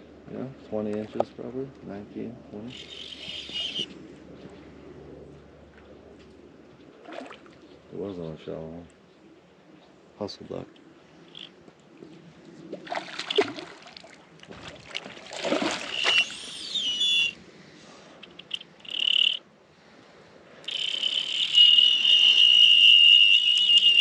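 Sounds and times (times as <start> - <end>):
fishing reel drag whining: 2.7 - 3.9, 15.8 - 17.4, 18.2 - 19.4, 20.6 - 24.0.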